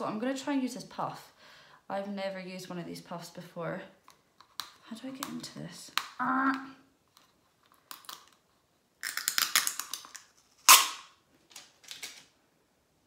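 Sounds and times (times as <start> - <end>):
plastic jar clicks and crackles: 4.0 - 6.2, 7.1 - 12.3.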